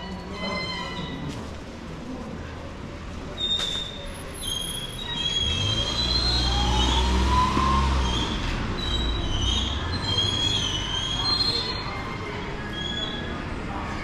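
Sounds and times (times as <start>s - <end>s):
train wheels squealing: 3.3s - 14.0s.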